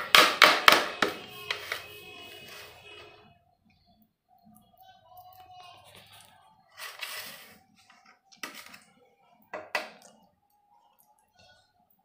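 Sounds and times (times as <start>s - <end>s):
spatula scraping metal tin: 6.8s - 7.6s.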